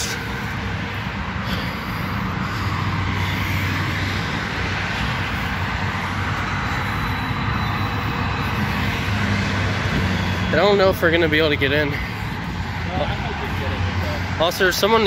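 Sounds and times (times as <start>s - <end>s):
road traffic roar: 0.0s - 15.0s.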